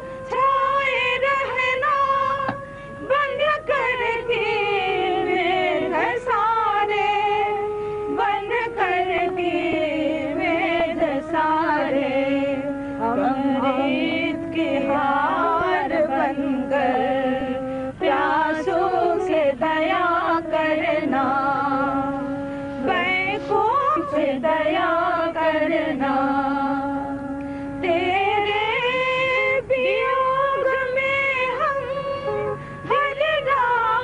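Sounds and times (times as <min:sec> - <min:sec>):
musical accompaniment: 0:00.0 - 0:34.0
person chanting: 0:09.5 - 0:22.2.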